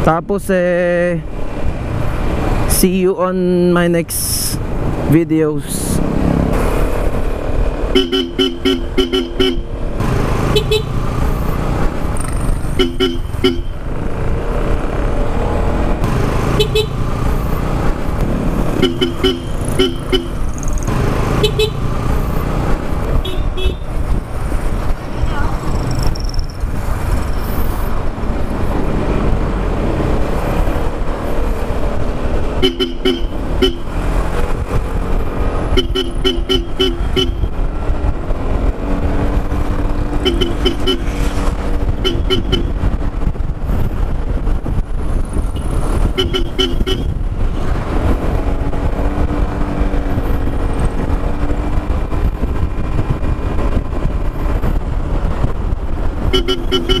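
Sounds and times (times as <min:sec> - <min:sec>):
wind rush and road noise: 0:00.0 - 0:57.0
scooter horn short beeps: 0:08.0 - 0:09.7, 0:12.8 - 0:13.8, 0:40.2 - 0:41.1, 0:46.2 - 0:47.1, 0:56.3 - 0:57.0.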